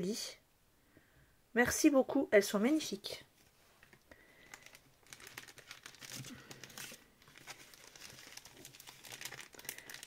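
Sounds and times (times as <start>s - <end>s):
plastic sleeve crinkling: 3.7s - 10.0s.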